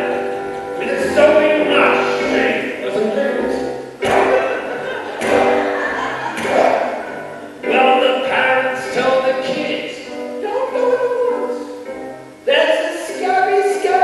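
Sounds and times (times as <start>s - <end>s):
man singing: 0.0s - 5.8s, 7.6s - 11.8s, 12.5s - 14.0s
acoustic guitar: 0.0s - 14.0s.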